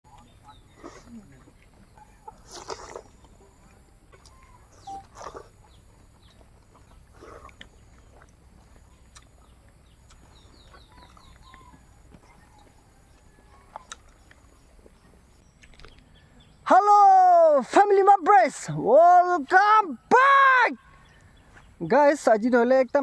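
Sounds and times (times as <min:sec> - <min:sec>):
chewing and biting: 0:00.1 - 0:16.2
farm animals: 0:00.1 - 0:16.6
bird chirping: 0:00.1 - 0:16.7.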